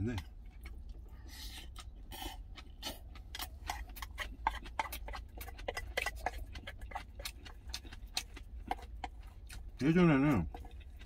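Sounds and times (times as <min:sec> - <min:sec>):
low steady hum: 0:00.0 - 0:11.0
slurp: 0:01.1 - 0:03.1.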